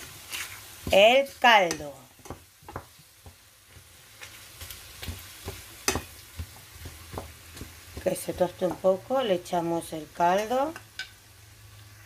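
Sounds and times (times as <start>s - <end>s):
vegetables sizzling in oil: 0.0s - 12.0s
wooden spoon knocking pot: 1.7s - 3.4s, 5.0s - 8.8s.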